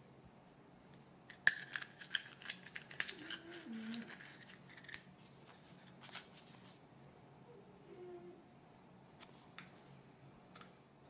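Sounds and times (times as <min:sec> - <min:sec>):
paper sheet crinkling: 0:01.6 - 0:06.8.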